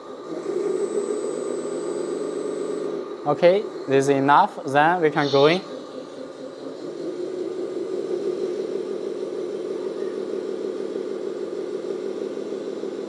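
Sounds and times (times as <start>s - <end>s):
toy truck motor hum: 0.0s - 13.0s.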